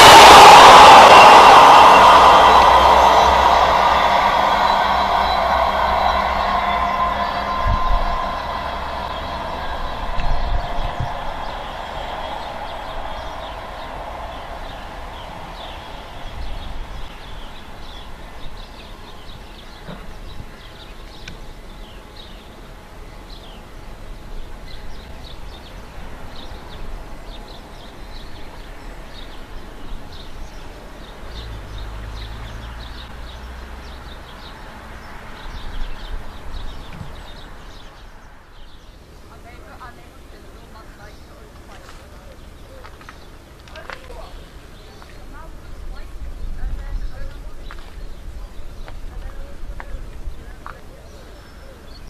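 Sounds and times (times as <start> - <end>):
steady low rumble: 0.0 - 19.4
diesel train: 0.0 - 22.0
small birds chirping: 11.4 - 52.0.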